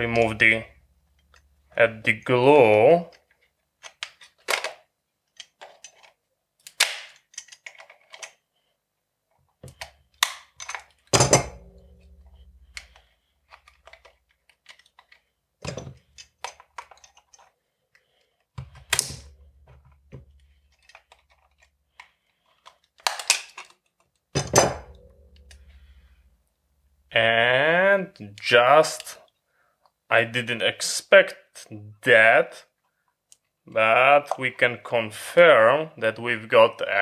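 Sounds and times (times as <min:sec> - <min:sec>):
plastic case cracking: 0:23.0 - 0:23.9.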